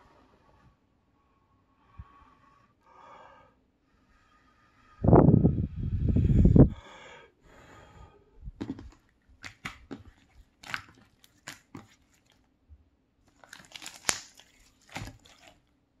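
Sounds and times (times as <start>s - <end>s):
slime clicking and crackling: 8.6s - 12.4s, 13.3s - 15.6s.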